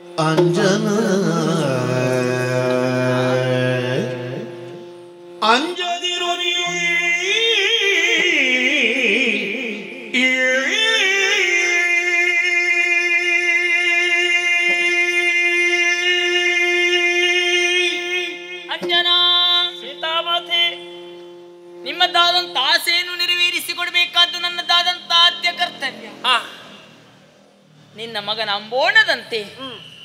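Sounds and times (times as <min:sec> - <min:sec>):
person singing ornamented verse: 0:00.0 - 0:04.8, 0:05.4 - 0:20.8.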